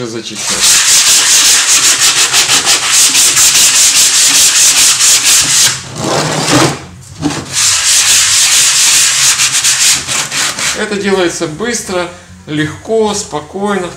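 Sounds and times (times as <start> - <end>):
sandpaper rubbing on wood: 0.4 - 5.8, 7.5 - 10.9.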